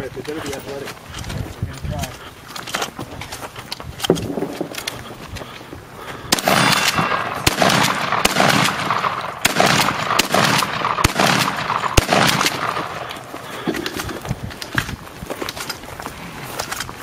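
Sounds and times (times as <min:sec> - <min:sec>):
rifle gunshots echoing: 0:04.0 - 0:05.0, 0:06.3 - 0:14.1.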